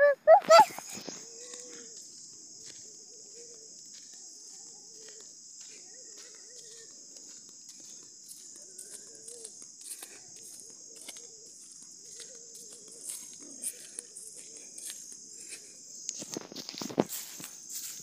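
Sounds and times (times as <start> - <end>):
low wavering bird call: 0.0 - 0.8
high insect drone: 0.0 - 18.0
footsteps rustling in grass: 0.5 - 18.0.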